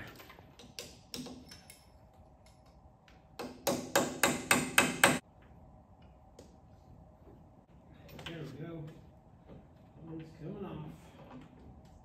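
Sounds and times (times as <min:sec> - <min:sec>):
hammer striking metal: 0:03.4 - 0:05.2.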